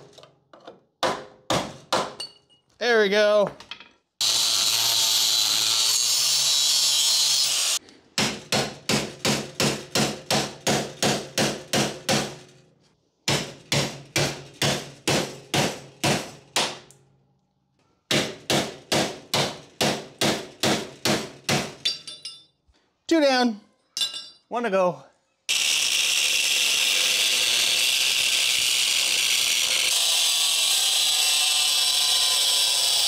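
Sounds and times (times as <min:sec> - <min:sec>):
angle grinder cutting steel: 0:04.2 - 0:07.8, 0:25.5 - 0:33.0.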